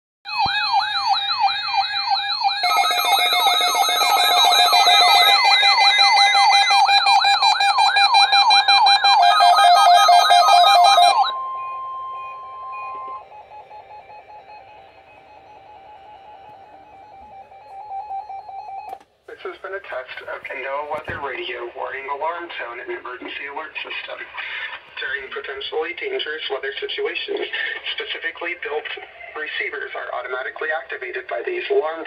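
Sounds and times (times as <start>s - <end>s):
warbling alarm tones: 0.3s - 19.0s.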